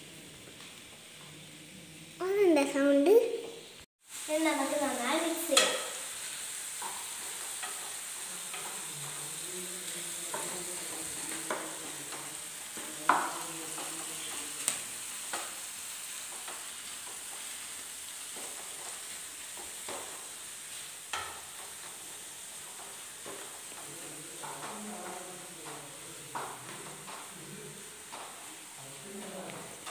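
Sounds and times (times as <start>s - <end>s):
food sizzling in hot oil: 0.0s - 29.9s
spatula clicking against pan: 5.6s - 5.9s.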